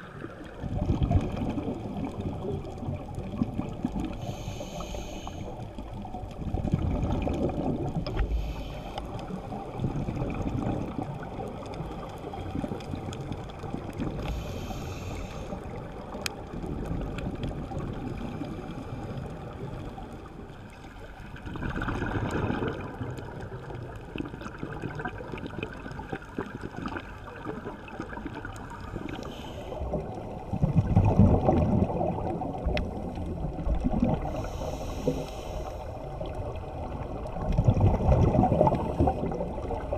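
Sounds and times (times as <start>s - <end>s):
exhaled bubbles rumbling: 0.0s - 39.9s
regulator inhalation hisses: 4.2s - 5.5s, 8.2s - 9.1s, 14.2s - 15.6s, 34.2s - 35.9s.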